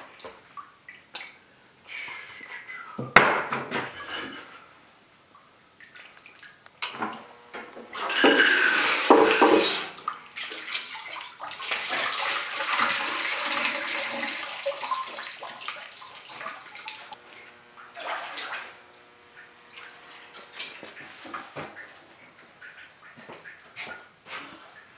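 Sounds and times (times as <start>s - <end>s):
water splashing into a sink: 8.0s - 17.2s, 17.8s - 18.8s.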